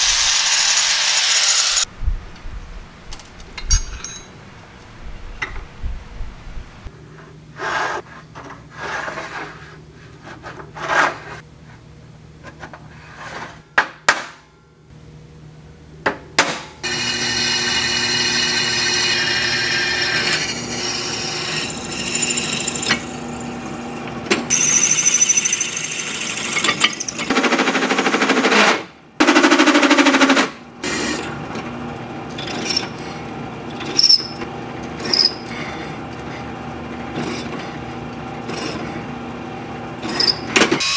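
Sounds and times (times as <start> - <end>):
metal parts clinking: 3.6 - 4.3
drill press whining: 16.8 - 27.3.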